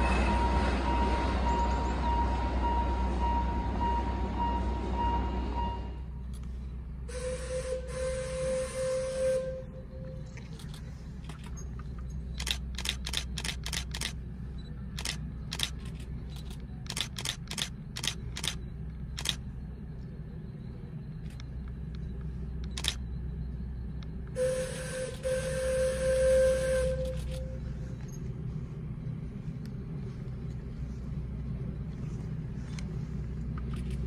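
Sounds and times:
steam whistle blowing: 0:07.1 - 0:10.0, 0:24.4 - 0:27.6
low rumble: 0:09.4 - 0:34.0
camera shutters clicking: 0:12.4 - 0:14.2, 0:15.0 - 0:18.6, 0:19.2 - 0:19.4, 0:22.7 - 0:23.0.

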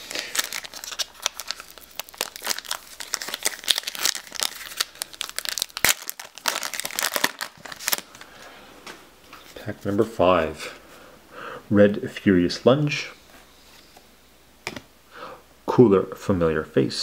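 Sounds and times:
foil wrapper crinkling: 0:00.0 - 0:08.4.

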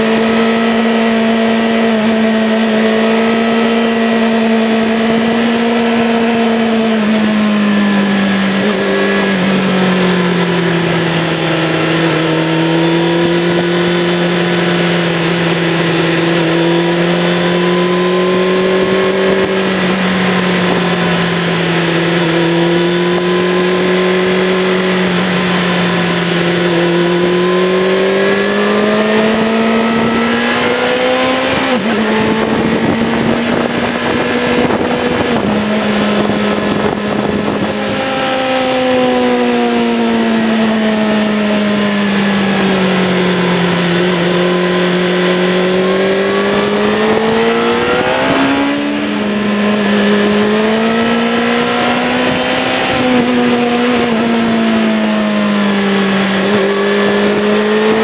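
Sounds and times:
motorcycle engine running: 0:00.0 - 0:58.0
wind rushing: 0:25.8 - 0:38.9.

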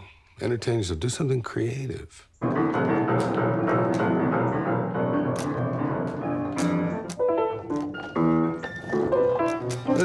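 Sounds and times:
child hammering piano keys: 0:02.4 - 0:10.0.

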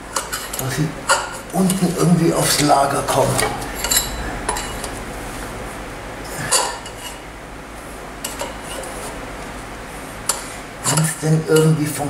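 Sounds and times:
metal tool scraping in wheel hub: 0:00.1 - 0:02.1, 0:03.3 - 0:05.0, 0:06.4 - 0:07.3, 0:08.2 - 0:09.2.

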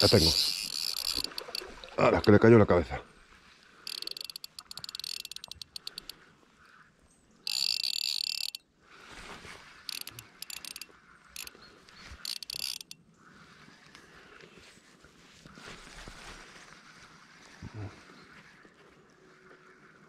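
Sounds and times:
fishing reel drag clicking: 0:00.0 - 0:02.4, 0:03.9 - 0:06.2, 0:07.4 - 0:08.7, 0:09.9 - 0:13.0
reel buzzing as line runs off: 0:00.0 - 0:02.4, 0:03.9 - 0:06.1, 0:07.5 - 0:08.6, 0:09.9 - 0:13.0.

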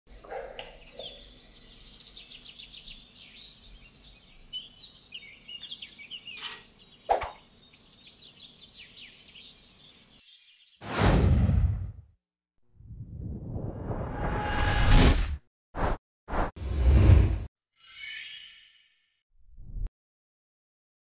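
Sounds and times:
birds chirping: 0:00.1 - 0:10.8.

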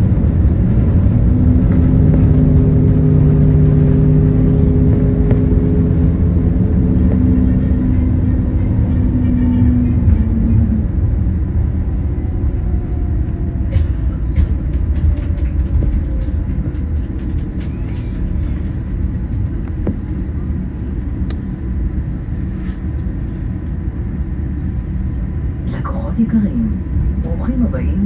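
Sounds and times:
light cabin rattles: 0:00.0 - 0:09.2, 0:13.4 - 0:20.9
airplane cabin rumble: 0:00.0 - 0:28.0
jet engine whine: 0:00.0 - 0:28.0.

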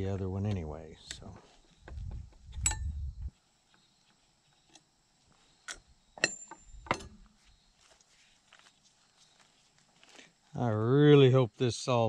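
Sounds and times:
metallic clinks of tools: 0:02.6 - 0:03.0, 0:05.7 - 0:07.2.

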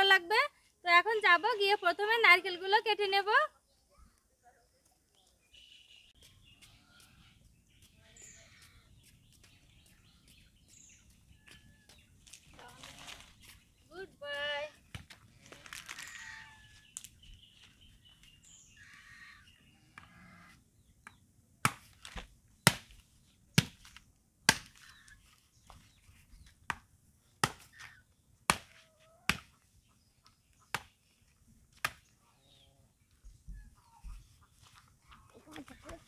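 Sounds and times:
blade chopping coconut husk: 0:21.6 - 0:23.0, 0:23.6 - 0:24.9, 0:27.4 - 0:27.8, 0:28.5 - 0:29.5.

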